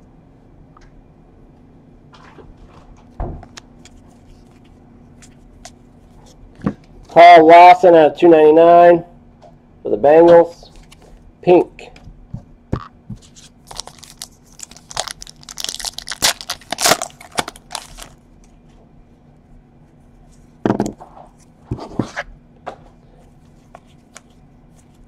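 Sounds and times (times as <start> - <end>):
cards being handled: 10.4 - 11.2, 12.8 - 18.6, 23.2 - 25.0
foil wrapper crinkling and tearing: 13.2 - 18.6.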